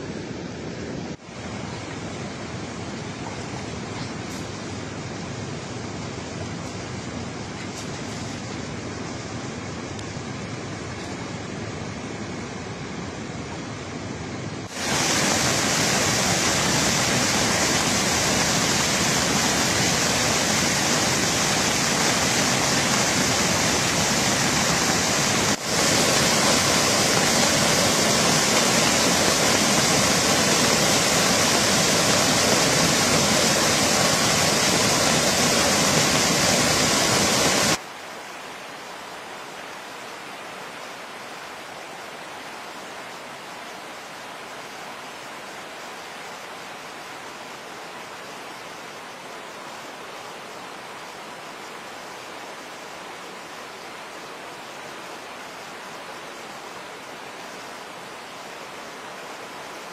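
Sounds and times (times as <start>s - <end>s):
water rushing over rocks: 14.7s - 59.9s.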